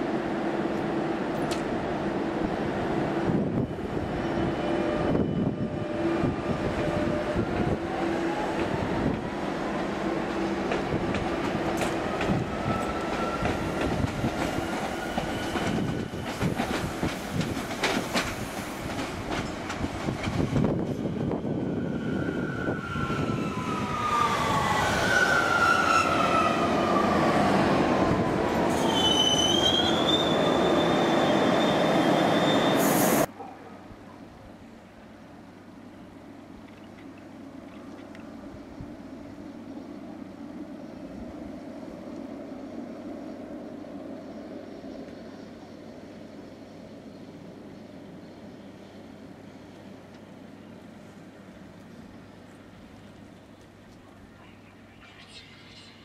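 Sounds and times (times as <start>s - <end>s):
high-pitched brake squeal: 28.7s - 33.3s.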